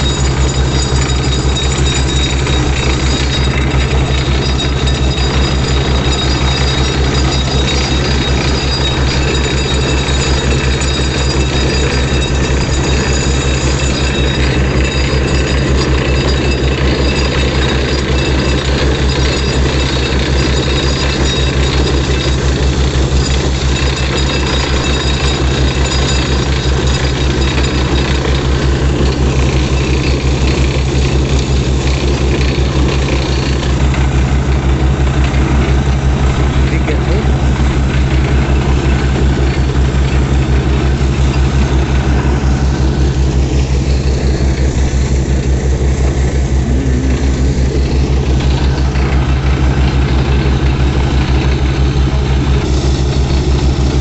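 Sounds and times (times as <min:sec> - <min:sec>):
engine and compressor drone: 0:00.0 - 0:54.0
rapid air hammer hammering: 0:00.0 - 0:54.0.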